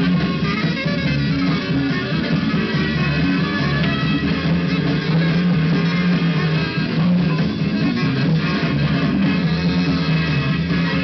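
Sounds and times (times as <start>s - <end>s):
loud music over sound system: 0.0s - 11.0s.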